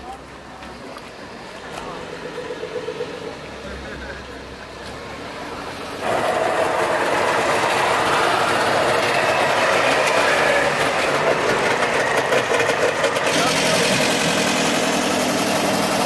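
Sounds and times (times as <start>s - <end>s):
two-stroke car engine running: 6.0s - 16.0s.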